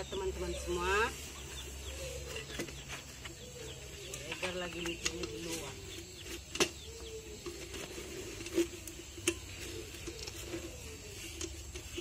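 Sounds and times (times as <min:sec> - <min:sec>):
bird calls: 0:00.0 - 0:12.0.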